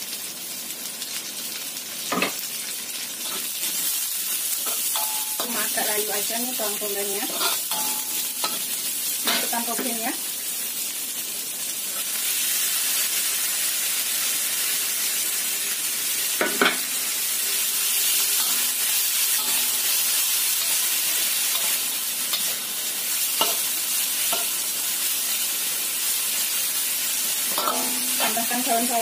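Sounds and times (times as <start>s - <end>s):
vegetables sizzling in a wok: 0.0s - 29.0s
spatula stirring and tossing: 3.2s - 10.0s, 18.3s - 24.7s, 27.5s - 29.0s
spatula clanking against wok: 4.6s - 5.6s, 7.3s - 8.6s, 23.4s - 23.7s, 27.5s - 28.4s.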